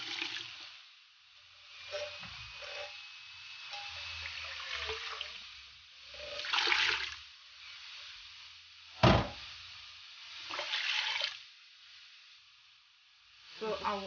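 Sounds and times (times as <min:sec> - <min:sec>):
liquid pouring into a metal pot: 0:00.0 - 0:00.5, 0:04.2 - 0:05.4, 0:06.1 - 0:07.2, 0:10.5 - 0:11.4.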